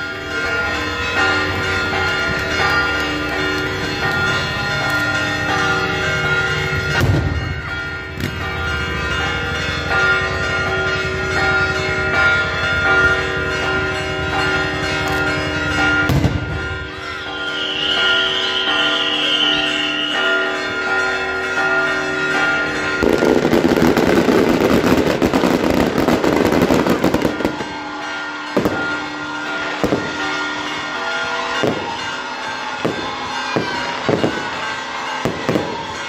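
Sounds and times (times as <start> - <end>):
church bells pealing: 0.0 - 36.0
fireworks bangs: 6.8 - 9.2, 16.0 - 16.8, 23.0 - 27.9, 28.5 - 29.1, 32.8 - 36.0.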